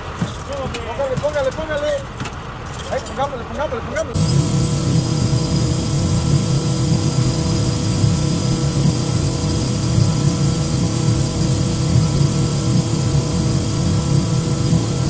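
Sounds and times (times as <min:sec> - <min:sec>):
engine drone: 0:03.4 - 0:15.0.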